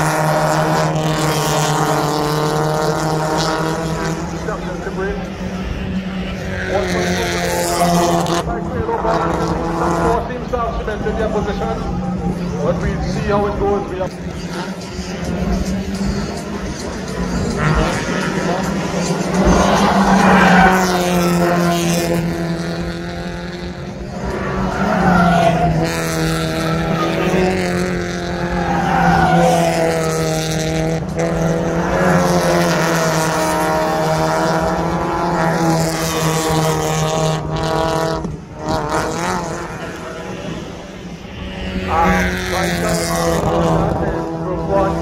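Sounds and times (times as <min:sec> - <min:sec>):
race car engines accelerating: 0:00.0 - 0:45.0.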